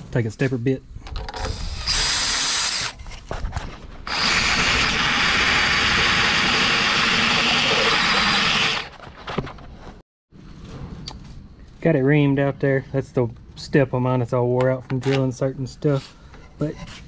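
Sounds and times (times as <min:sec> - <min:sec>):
cordless drill reaming a nut: 0:01.4 - 0:02.9, 0:04.1 - 0:08.9.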